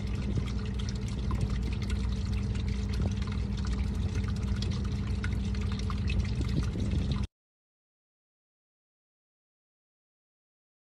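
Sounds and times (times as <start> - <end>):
low hum: 0.0 - 7.3.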